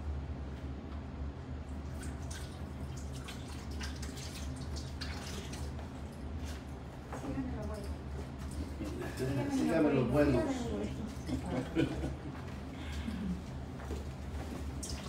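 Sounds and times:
steady low hum: 0.0s - 15.0s
water pouring and splashing into basin: 1.8s - 6.7s, 14.5s - 15.0s
water dripping: 1.9s - 6.2s.

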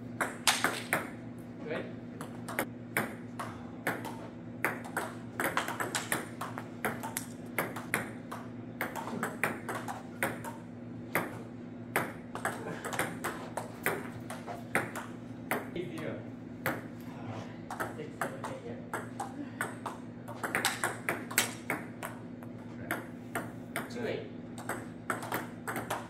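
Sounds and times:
steady low hum: 0.0s - 26.0s
table tennis ball clicking: 4.6s - 10.6s, 17.7s - 22.2s, 24.6s - 26.0s.

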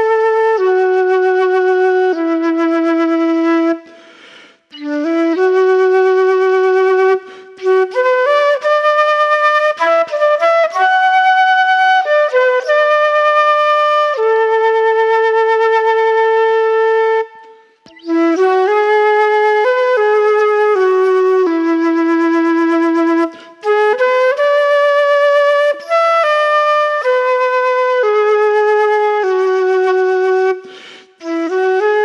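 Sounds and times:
solo flute melody: 0.0s - 32.0s.

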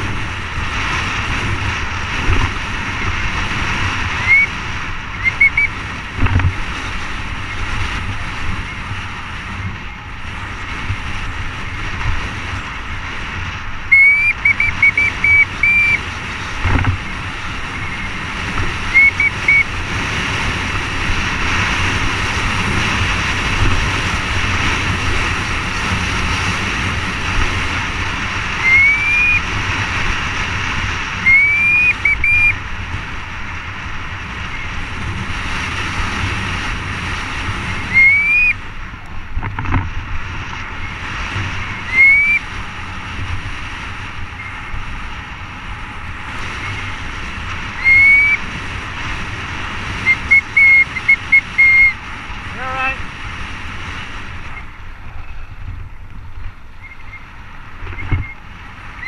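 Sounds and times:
wind rushing over camera: 0.0s - 59.0s
bike brakes squealing: 4.2s - 4.6s, 5.2s - 5.8s, 13.9s - 16.0s, 18.8s - 19.7s, 28.6s - 29.5s, 31.2s - 32.6s, 37.7s - 38.6s, 41.7s - 42.5s, 47.8s - 48.4s, 50.0s - 52.0s.

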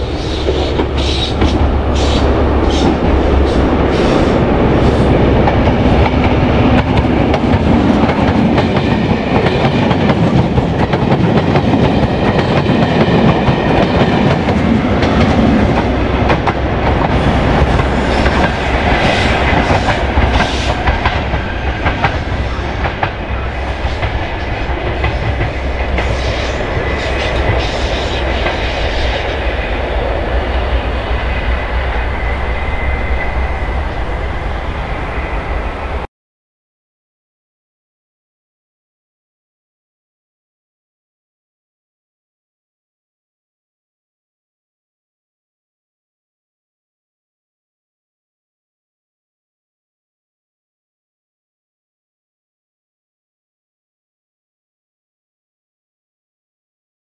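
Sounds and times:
train engine noise: 0.0s - 36.1s.

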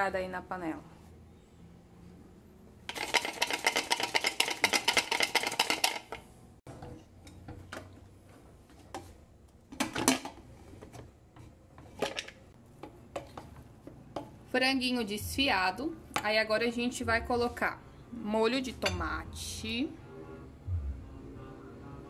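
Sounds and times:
kitchenware clattering: 2.8s - 14.5s, 18.6s - 19.2s
pot and lid rattling: 2.9s - 8.0s, 9.7s - 10.4s, 11.8s - 12.5s.

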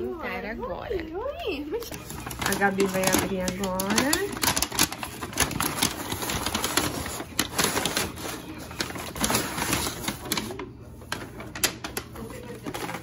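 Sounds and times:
paper and plastic bags crinkling: 1.8s - 13.0s.

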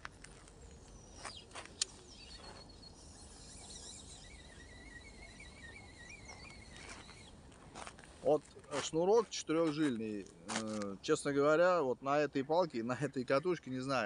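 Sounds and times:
fishing line buzzing on reel: 2.8s - 7.3s
falling whine of reel cast: 2.9s - 7.3s.

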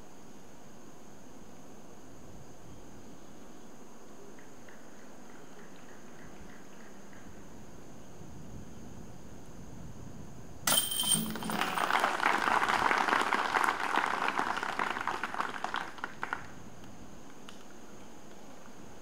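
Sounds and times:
disc hitting metal chains: 10.7s - 12.1s
spectators clapping: 11.3s - 16.6s.

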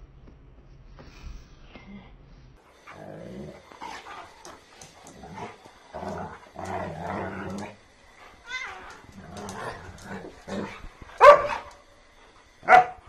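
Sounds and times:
dog growling: 2.8s - 11.8s.

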